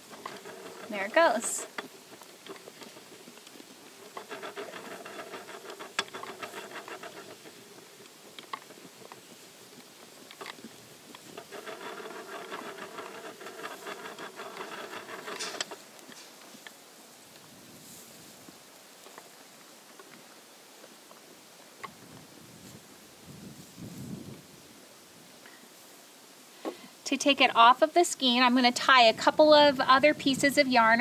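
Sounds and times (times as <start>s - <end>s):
wooden skein maker rattling: 0.0s - 16.9s.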